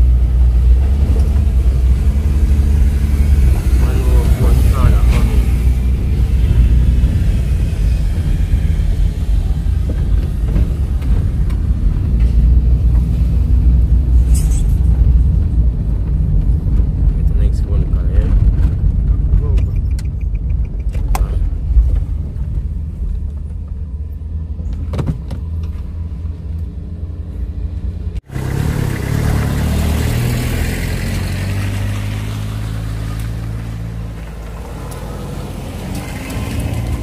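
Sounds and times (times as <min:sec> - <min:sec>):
engine and tyre rumble: 0:00.0 - 0:37.0
van engine running: 0:00.0 - 0:37.0
wind buffeting microphone: 0:00.7 - 0:14.2.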